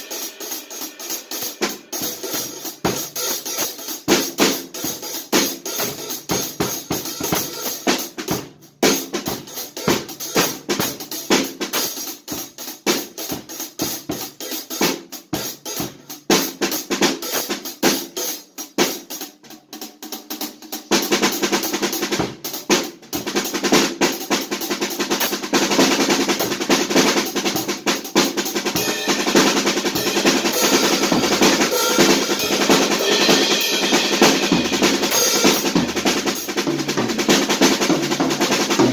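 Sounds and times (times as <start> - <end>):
drum strokes: 0.0 - 14.6, 26.3 - 38.9.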